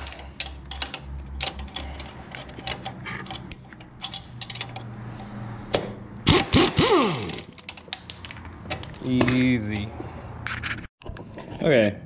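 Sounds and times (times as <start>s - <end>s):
metallic clicks and clinks: 0.0s - 5.2s.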